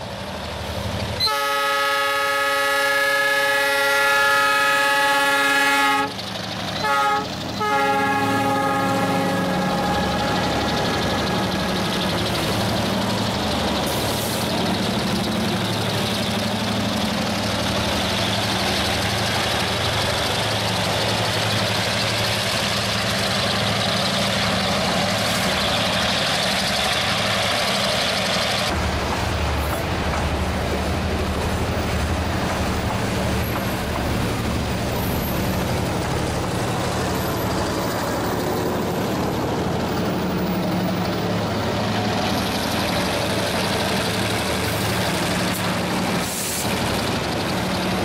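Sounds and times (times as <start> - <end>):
locomotive engine drone: 0.0 - 48.0
train wheels rumbling on rail: 0.0 - 48.0
locomotive air horn blasts: 1.2 - 6.2, 6.8 - 10.6.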